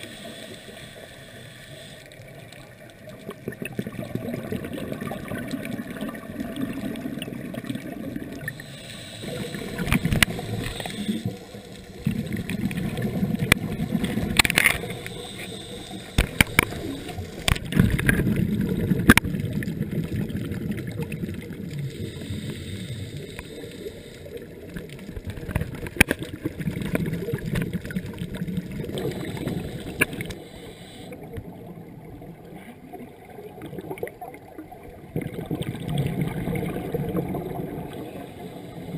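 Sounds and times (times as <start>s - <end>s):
underwater bubbling: 0.0s - 38.9s
sharp clicks: 14.3s - 18.2s.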